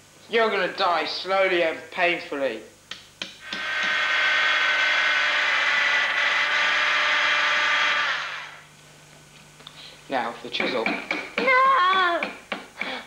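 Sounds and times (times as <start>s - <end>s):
drill press motor running: 3.4s - 8.7s.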